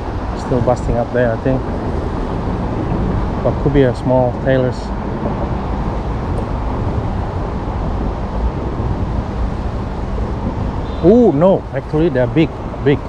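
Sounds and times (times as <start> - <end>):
low rumbling background noise: 0.0 - 13.0.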